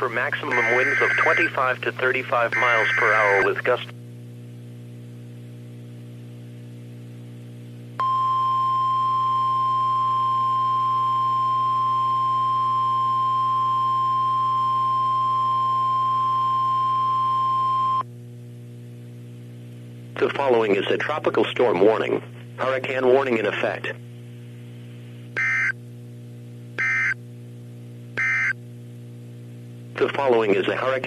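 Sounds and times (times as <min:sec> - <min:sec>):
low steady hum: 0:00.0 - 0:31.0
steady single-pitched alarm tone: 0:00.5 - 0:01.5, 0:02.5 - 0:03.5, 0:25.4 - 0:25.8, 0:26.8 - 0:27.2, 0:28.2 - 0:28.6.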